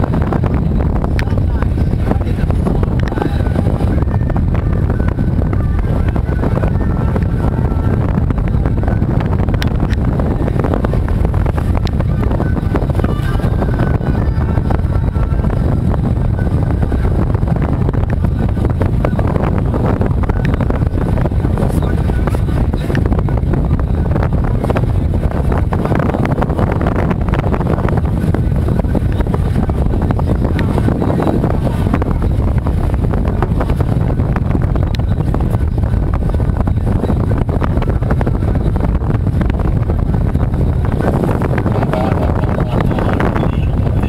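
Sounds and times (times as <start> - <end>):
small boat at sea: 0.0 - 44.0
wind rumble on microphone: 0.0 - 44.0.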